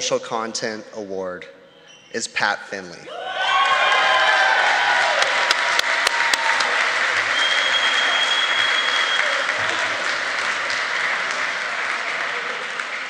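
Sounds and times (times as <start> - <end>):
audience applauding and cheering: 3.1 - 13.0
long high whistle: 7.2 - 9.5.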